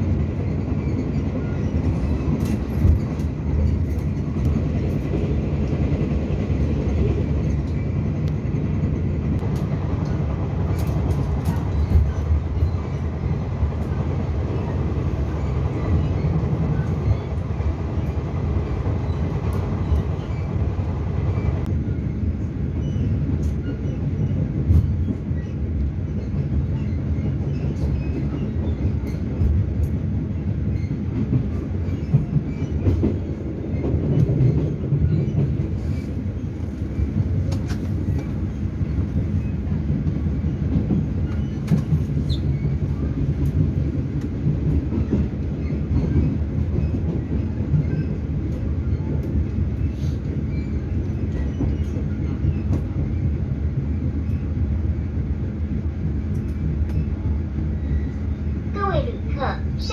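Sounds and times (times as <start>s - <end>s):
train coach rumbling on rails: 0.0s - 59.9s.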